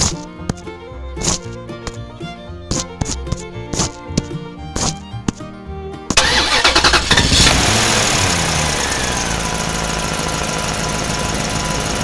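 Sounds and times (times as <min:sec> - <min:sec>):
music: 0:00.0 - 0:07.2
vehicle engine starting and idling: 0:06.1 - 0:12.0.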